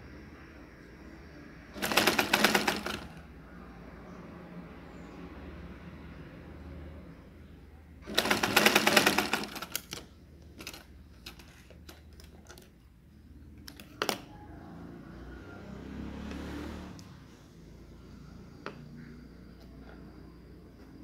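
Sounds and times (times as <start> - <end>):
sewing machine stitching: 1.8 - 3.2, 8.0 - 11.7.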